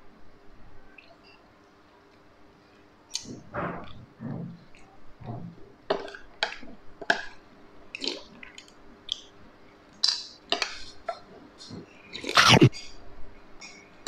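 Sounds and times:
mouth clicks and smacks: 12.2s - 12.9s.

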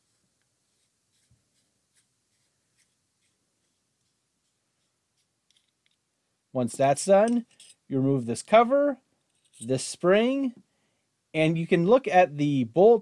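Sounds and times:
metal rifle bolt knob unscrewing: 5.5s - 6.0s.

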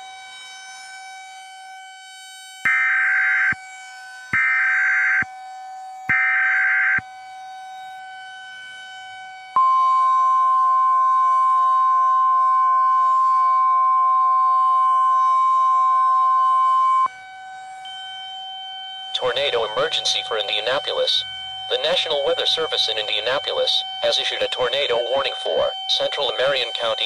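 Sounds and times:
steady warning alarm tone: 0.0s - 27.0s
electronic data bursts: 19.2s - 27.0s.

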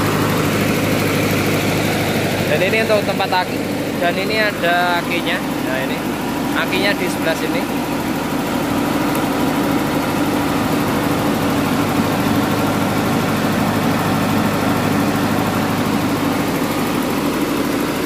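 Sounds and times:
diesel generator running: 0.0s - 18.0s.

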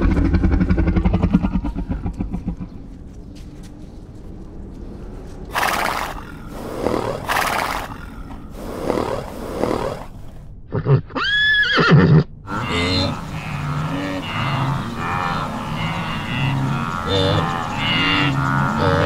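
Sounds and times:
horses snorting: 5.5s - 11.1s, 12.5s - 19.0s
horse whinnying: 10.7s - 12.3s.

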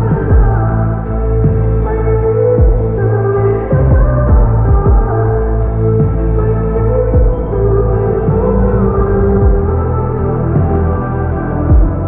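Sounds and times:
deep low hit: 0.0s - 0.8s, 3.7s - 11.0s
muffled pop song: 0.0s - 12.0s.

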